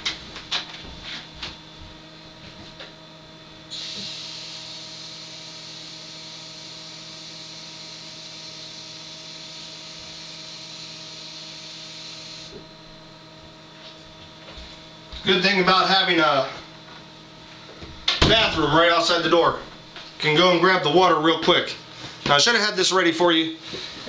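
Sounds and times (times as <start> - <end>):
footsteps: 0.2 - 2.9, 13.8 - 15.3.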